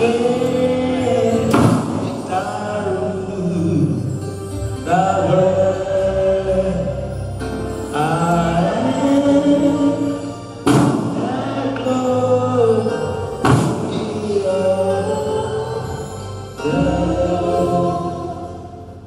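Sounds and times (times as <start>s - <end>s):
gospel worship singing: 0.0s - 4.1s, 4.8s - 7.1s, 7.9s - 19.0s
sharp knock: 1.5s - 2.1s.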